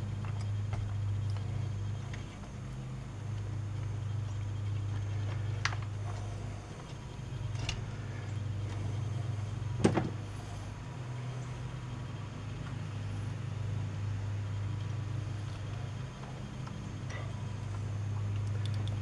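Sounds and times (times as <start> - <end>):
steady low hum: 0.0 - 19.0
light clicks of small parts: 16.2 - 19.0.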